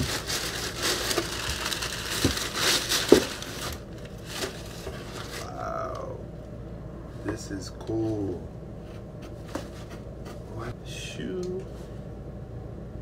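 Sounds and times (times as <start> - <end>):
wrapping paper rustling: 0.0 - 5.5.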